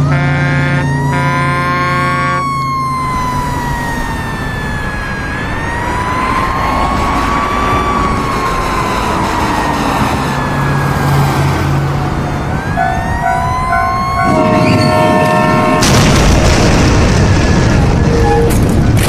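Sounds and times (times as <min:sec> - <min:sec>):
train horn chord: 0:00.0 - 0:02.4, 0:12.8 - 0:15.9
fire truck siren wailing: 0:00.0 - 0:19.0
loud crash: 0:14.3 - 0:19.0.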